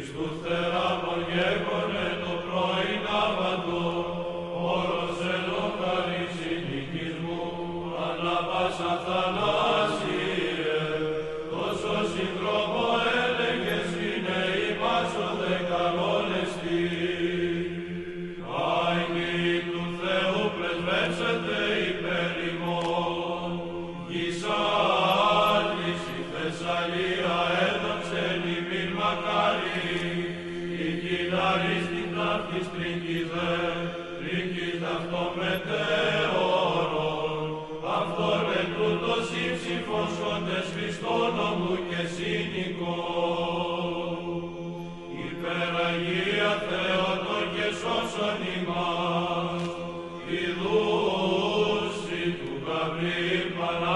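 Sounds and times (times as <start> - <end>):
voices chanting: 0.0 - 53.9.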